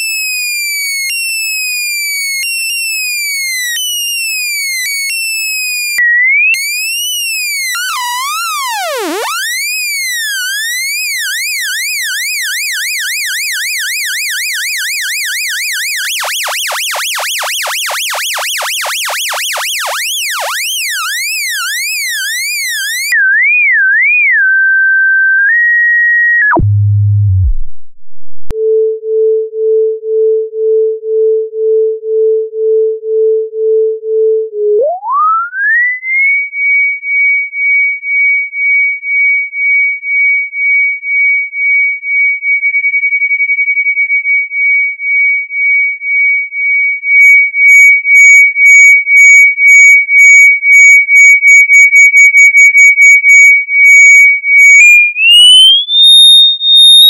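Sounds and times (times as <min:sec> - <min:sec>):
pulsing sine tone: 0:07.3 - 0:13.4, 0:14.0 - 0:29.8, 0:31.6 - 0:36.0, 0:53.9 - 0:57.0
wobbling synthesized tone: 0:07.7 - 0:09.6, 0:26.5 - 0:28.5, 0:34.7 - 0:36.0, 0:54.6 - 0:57.0.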